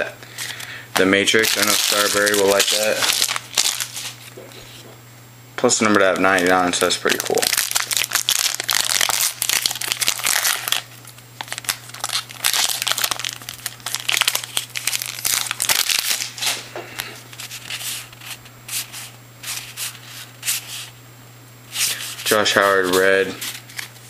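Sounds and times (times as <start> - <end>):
foil wrapper tearing and crinkling: 0.4 - 4.3, 6.0 - 20.6, 21.8 - 24.0
cards rustling and sliding: 0.4 - 4.8, 13.8 - 21.0, 21.7 - 24.0.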